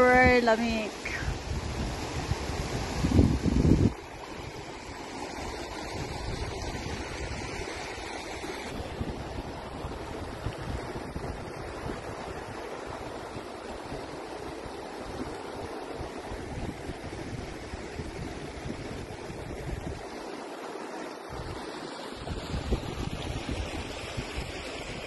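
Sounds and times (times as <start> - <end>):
river rushing over gravel: 0.0 - 16.5
wind buffeting microphone: 0.0 - 20.2, 22.2 - 25.0.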